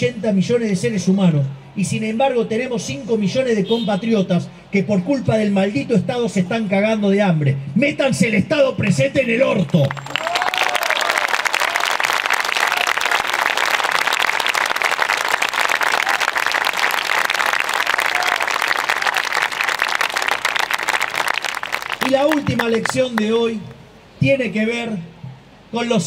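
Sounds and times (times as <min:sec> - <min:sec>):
large crowd applauding: 0:09.7 - 0:23.3
people shouting: 0:18.0 - 0:18.5.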